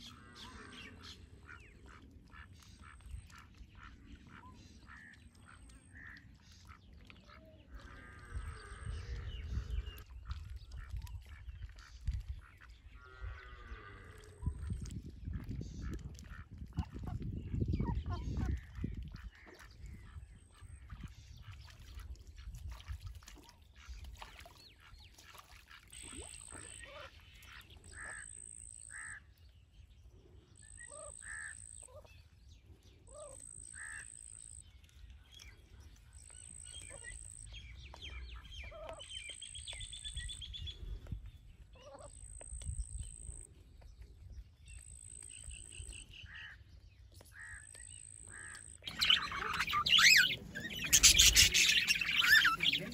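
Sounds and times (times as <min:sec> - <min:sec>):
ducks quacking: 0:00.0 - 0:09.8, 0:47.4 - 0:52.9.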